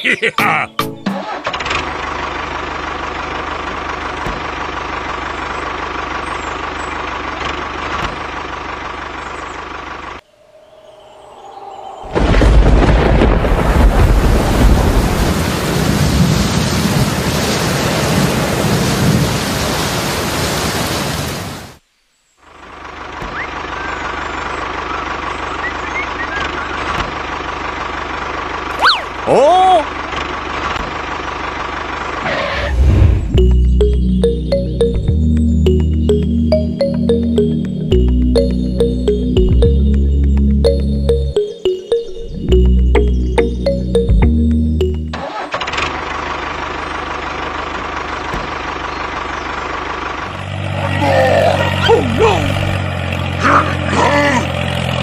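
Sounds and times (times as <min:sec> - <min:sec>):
music: 0:00.4 - 0:01.2, 0:33.3 - 0:45.2
tractor engine running: 0:00.9 - 0:10.2, 0:22.5 - 0:55.0
faint high chirps: 0:10.2 - 0:12.2.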